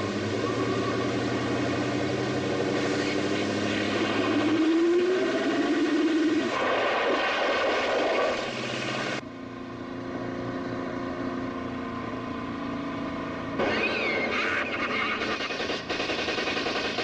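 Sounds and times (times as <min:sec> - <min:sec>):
car skidding with tyre noise: 0:00.0 - 0:09.2, 0:13.6 - 0:15.8
car engine drone: 0:00.0 - 0:17.0
car engine running hard: 0:00.0 - 0:17.0.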